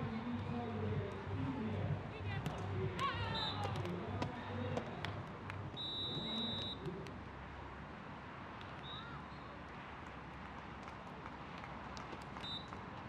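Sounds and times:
high steady whistle tone: 5.8 - 6.8.

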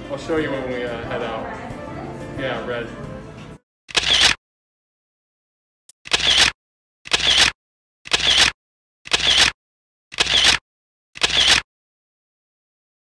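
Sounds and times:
camera shutter clicks: 3.9 - 4.4, 6.0 - 9.6, 10.2 - 10.6, 11.2 - 11.7.

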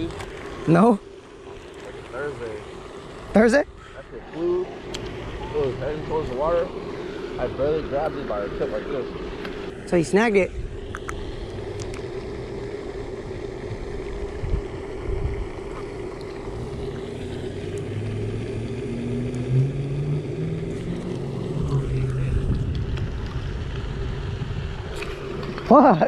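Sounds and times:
motor humming: 0.0 - 26.0
wind noise on microphone: 13.6 - 15.8, 20.8 - 25.6.

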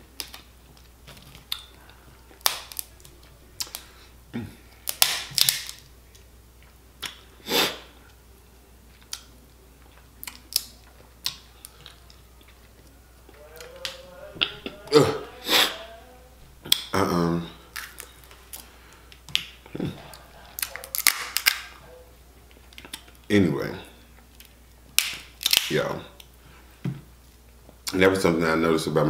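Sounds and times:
crab shells cracking: 0.1 - 3.9, 4.8 - 6.3, 10.2 - 12.6, 17.7 - 19.8, 20.6 - 21.8, 24.3 - 26.3.

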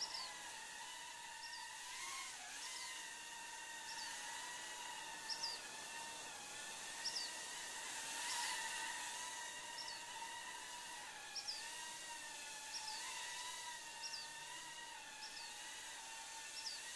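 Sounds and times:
drone propellers whining: 0.0 - 16.9.

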